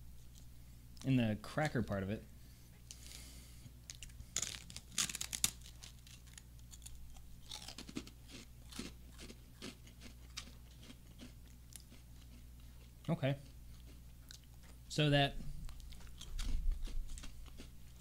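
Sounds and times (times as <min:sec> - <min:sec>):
crunchy chewing: 0:02.9 - 0:18.0
loud crunches of rice cracker: 0:03.9 - 0:12.9, 0:15.7 - 0:18.0.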